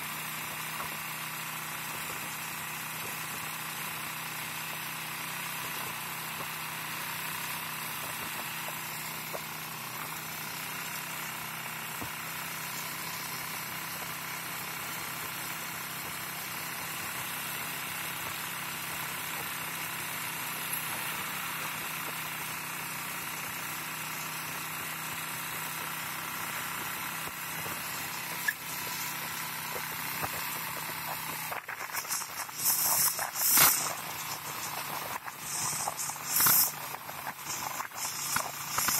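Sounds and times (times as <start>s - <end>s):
loud irregular noise bursts: 0.0s - 38.9s
small motorcycle engine running: 0.0s - 38.9s
road noise: 26.6s - 38.9s.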